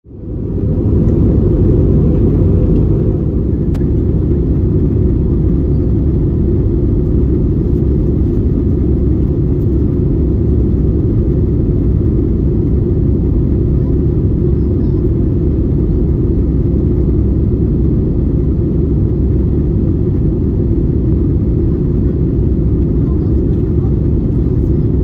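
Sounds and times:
airplane cabin roar: 0.0 - 25.0.

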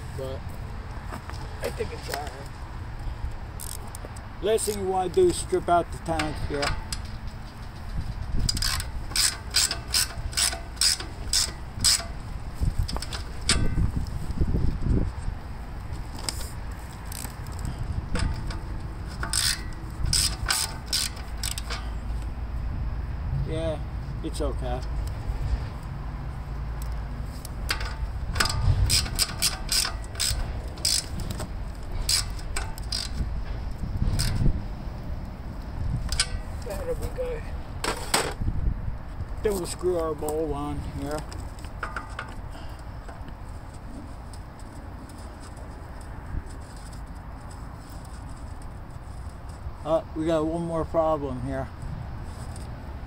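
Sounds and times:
ratchet wrench clicking: 3.6 - 4.9, 6.0 - 14.1, 17.0 - 22.3, 26.8 - 34.6, 36.0 - 36.6.

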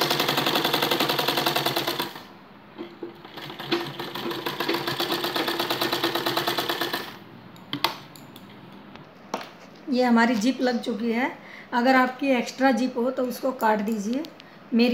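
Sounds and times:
sewing machine stitching: 0.0 - 7.2.

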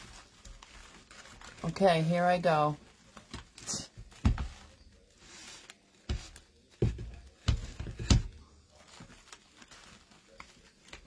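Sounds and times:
fabric rustling: 0.0 - 6.7, 7.7 - 11.0
dull thumps: 4.0 - 4.7.

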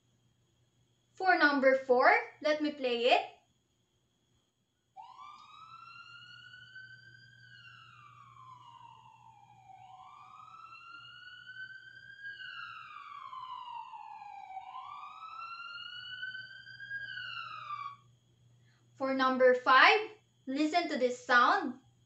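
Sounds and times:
ambulance siren wailing: 5.0 - 18.1.

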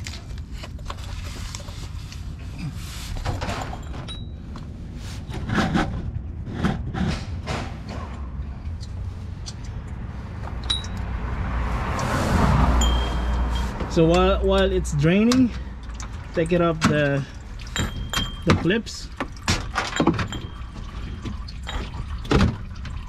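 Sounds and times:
steady low rumble: 5.8 - 16.6
oil draining into pan: 20.3 - 23.0.

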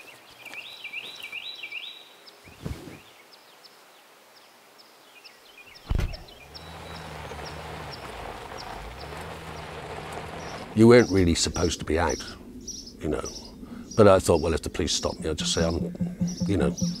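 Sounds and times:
birds chirping: 0.0 - 3.8, 4.4 - 17.0
soft thump: 5.9 - 6.2, 15.4 - 17.0
car door slamming: 5.9 - 6.3
low steady hum: 12.2 - 17.0.

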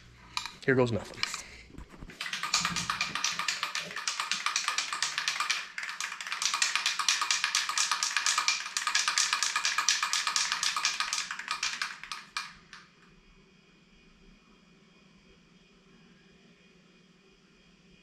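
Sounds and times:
spray can rattling while shaken: 0.4 - 12.9.

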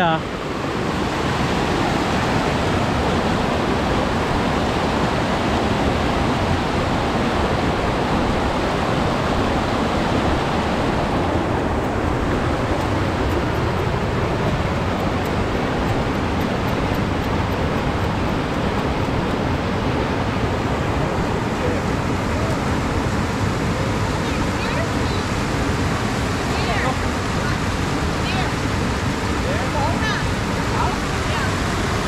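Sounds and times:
mountain stream rushing: 0.0 - 32.0.

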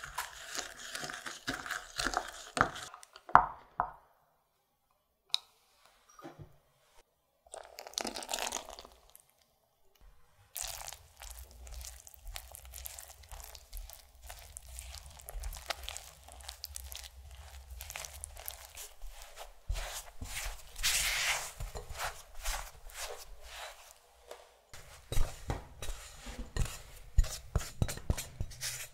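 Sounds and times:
liquid pouring into a bowl: 7.5 - 9.3
spatula scraping dough in glass bowl: 10.6 - 24.0, 24.8 - 28.9.

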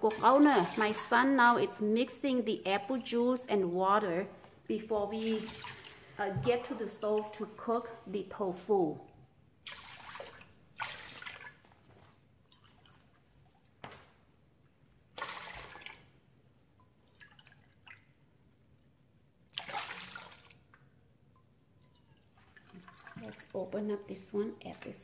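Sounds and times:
juice splashing into metal bowl: 19.5 - 23.6.

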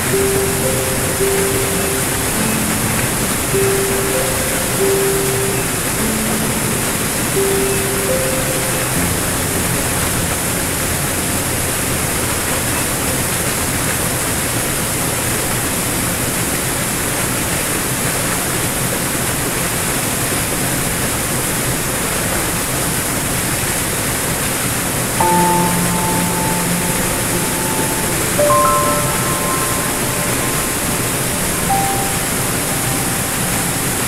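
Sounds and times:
piano chord: 0.0 - 15.0, 25.2 - 34.0
waterfall rushing into pool: 0.0 - 34.0.

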